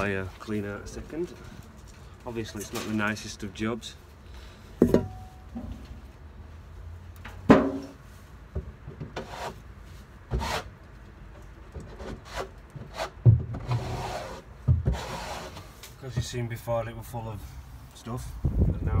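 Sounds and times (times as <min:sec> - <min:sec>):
hand scraper scraping wood floor: 0:09.2 - 0:09.6, 0:10.3 - 0:10.7, 0:12.0 - 0:15.7.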